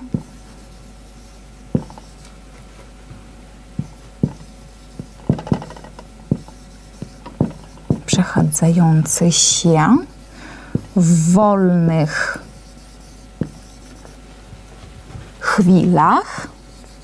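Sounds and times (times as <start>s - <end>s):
marker scraping on whiteboard: 0.2s - 2.4s, 3.8s - 14.2s, 14.8s - 17.0s.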